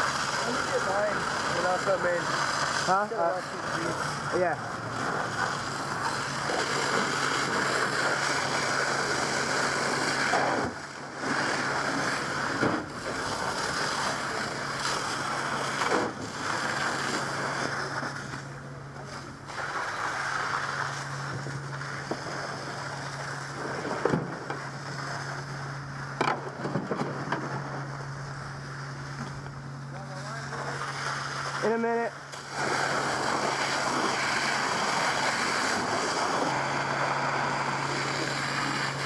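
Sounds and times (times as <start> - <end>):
fire hose spray hissing: 0.0 - 18.3, 19.1 - 23.6, 30.0 - 39.0
low steady hum: 0.0 - 39.0.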